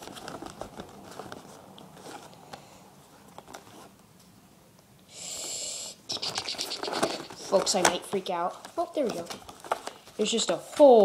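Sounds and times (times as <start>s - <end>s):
packaging clicks and crackles: 6.7s - 10.8s.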